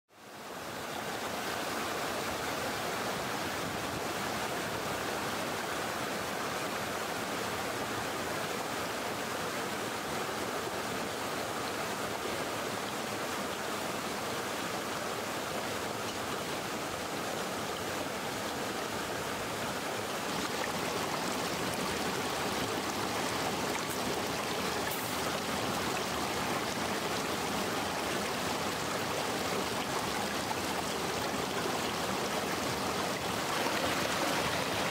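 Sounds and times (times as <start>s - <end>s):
stream rushing over rocks: 0.2s - 34.9s.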